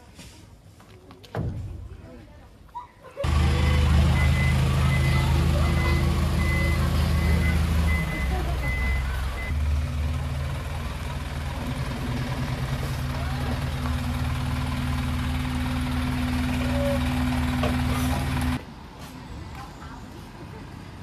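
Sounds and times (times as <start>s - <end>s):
diesel truck engine idling: 3.2s - 18.6s
reversing beeper: 3.3s - 9.6s.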